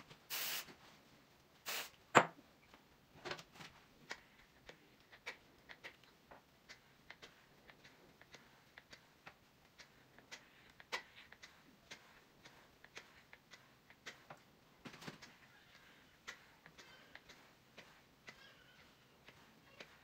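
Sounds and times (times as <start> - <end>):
aerosol spray can hissing: 0.3 - 0.7, 1.6 - 2.0.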